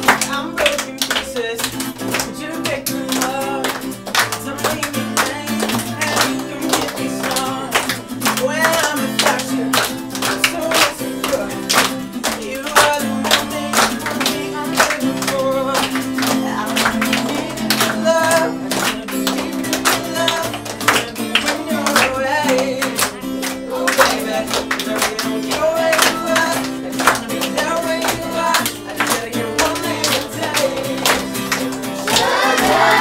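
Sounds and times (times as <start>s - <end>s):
acoustic guitar strumming: 0.0s - 33.0s
children clapping: 0.0s - 33.0s
children singing: 32.0s - 33.0s.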